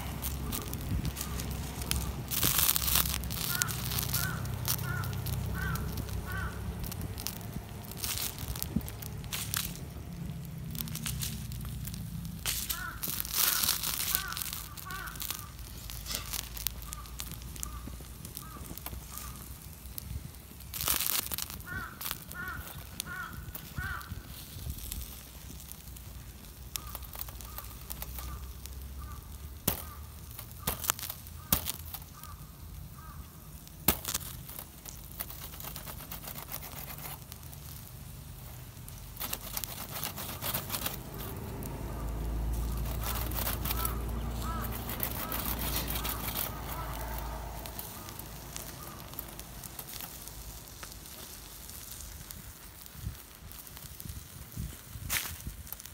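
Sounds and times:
fire pops and clicks: 0.0 - 55.9
wood fire crackling: 0.0 - 55.9
crows cawing: 1.2 - 7.3, 12.6 - 19.5, 21.5 - 24.4, 26.7 - 33.6, 41.9 - 50.2.

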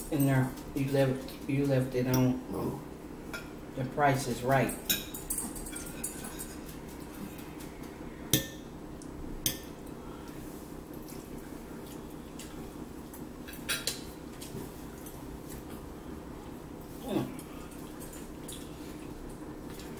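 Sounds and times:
forks clinking on plates: 4.8 - 6.8.

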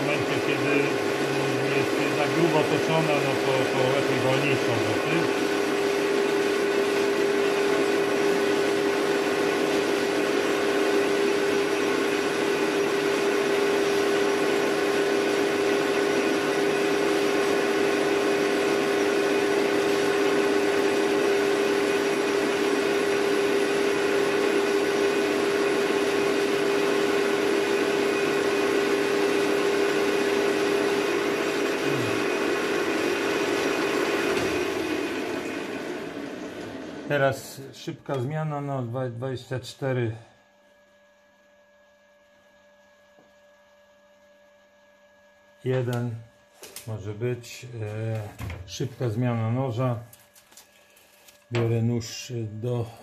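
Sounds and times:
steady drive whine: 0.0 - 8.2, 45.6 - 53.0
metal lathe turning: 0.0 - 37.4.

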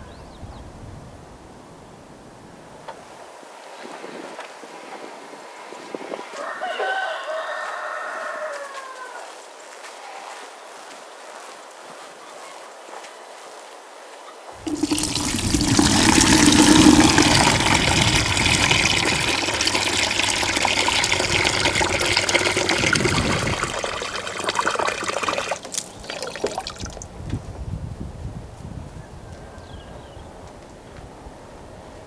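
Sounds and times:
water running loudly: 14.6 - 27.1.

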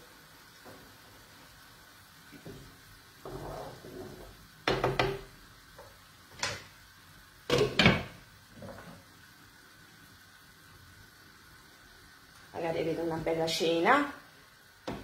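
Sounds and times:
pot lid and skimmer clanking on pots: 7.5 - 8.9.

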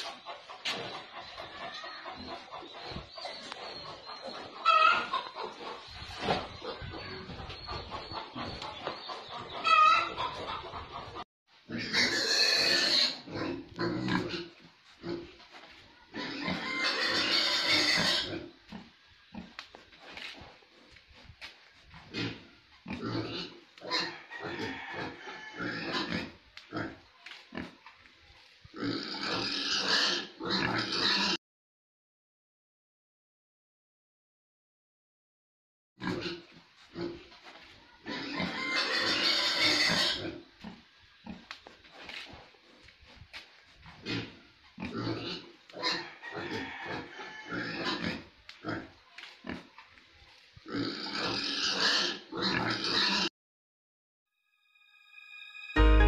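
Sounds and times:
pigs squealing loudly: 4.6 - 5.3, 11.7 - 15.2, 16.1 - 19.5, 22.0 - 27.0, 28.8 - 31.4, 38.0 - 41.4, 43.9 - 49.6, 50.7 - 53.3
pigs grunting: 11.7 - 15.5, 16.1 - 27.8, 28.7 - 31.4, 36.0 - 37.4, 38.0 - 49.8, 50.6 - 53.3.

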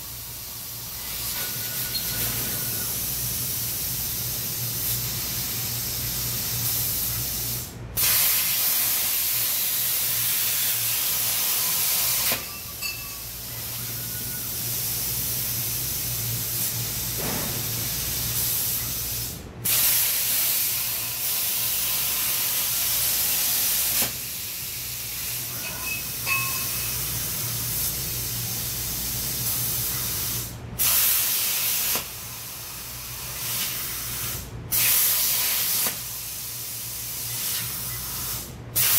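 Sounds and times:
plasma cutter torch hissing: 0.1 - 12.6, 13.3 - 38.9.

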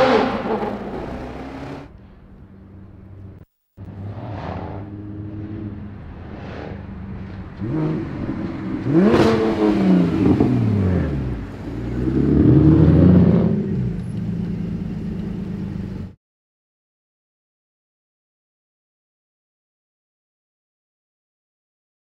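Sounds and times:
car engine accelerating: 0.0 - 16.2.

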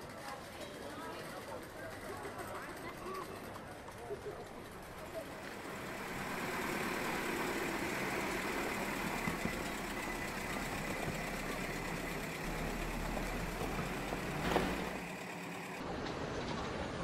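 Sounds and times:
car engine idling: 4.6 - 15.8.

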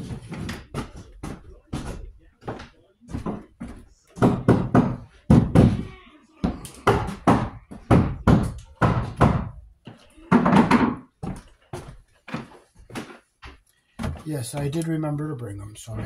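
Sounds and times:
knocks and thuds: 3.2 - 9.6, 10.3 - 11.4.

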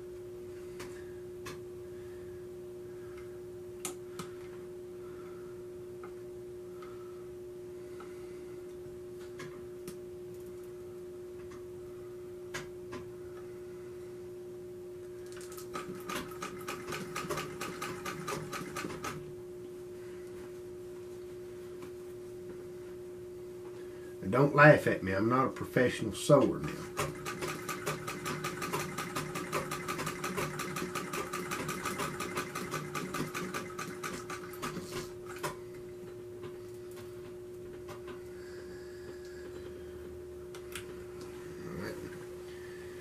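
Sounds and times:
sewing machine clatter: 15.4 - 19.2, 26.7 - 35.5
sewing machine clicks: 26.9 - 34.8.

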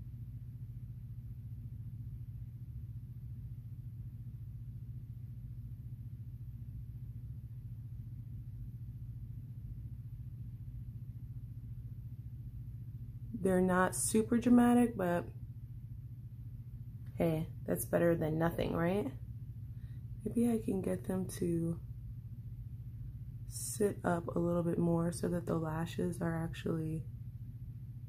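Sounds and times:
low hum with faint hiss: 0.0 - 28.0.

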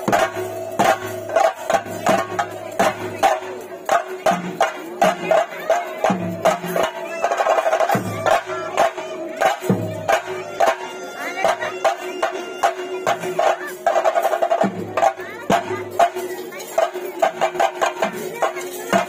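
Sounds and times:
cymbal clashes: 0.0 - 19.0
drums in fast rhythm: 0.0 - 19.0
heavy low drum beats: 0.0 - 19.0
held wind instrument note: 10.0 - 13.5.

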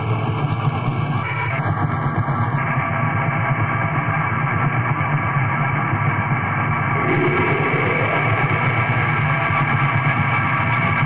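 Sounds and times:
distorted guitar black metal: 6.8 - 11.0.

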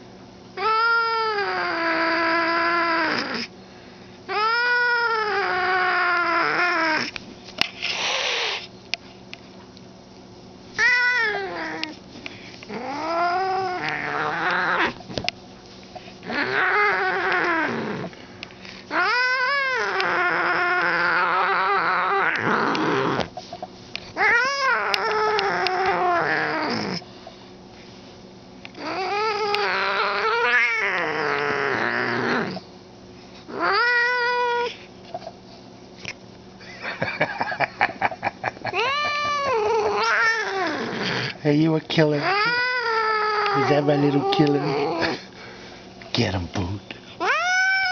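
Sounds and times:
cat yowling: 0.6 - 3.5, 4.3 - 7.1, 10.8 - 12.0, 12.7 - 15.0, 16.3 - 18.1, 18.9 - 23.3, 24.2 - 27.0, 28.8 - 32.6, 33.5 - 34.8, 38.6 - 41.3, 42.1 - 45.2, 47.2 - 47.9.

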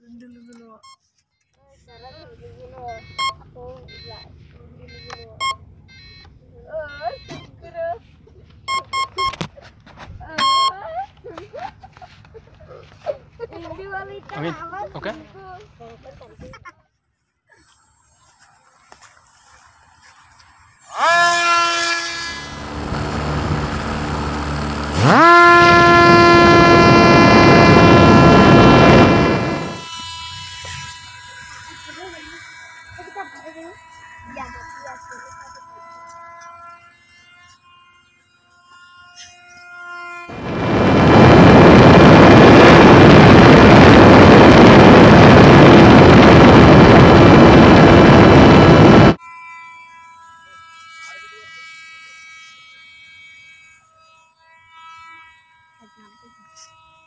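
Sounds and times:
electric motor propeller whine: 17.6 - 57.0
rush of air: 40.3 - 49.2.

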